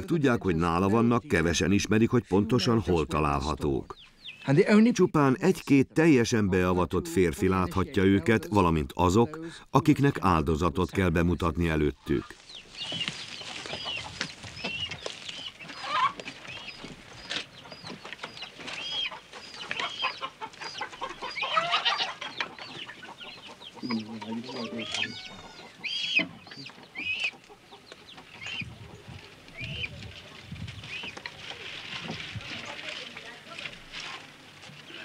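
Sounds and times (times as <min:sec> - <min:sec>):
chickens clucking: 0:00.0 - 0:35.0
longer low chicken call: 0:24.4 - 0:25.8.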